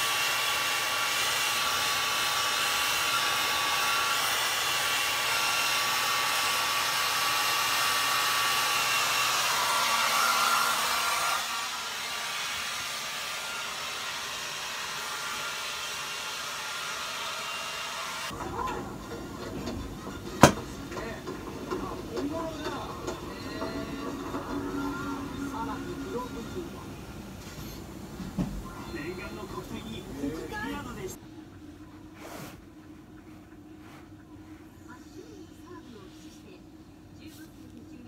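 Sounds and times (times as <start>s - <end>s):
hair dryer blowing: 0.0s - 18.4s, 19.6s - 21.2s
television playing: 18.3s - 38.0s.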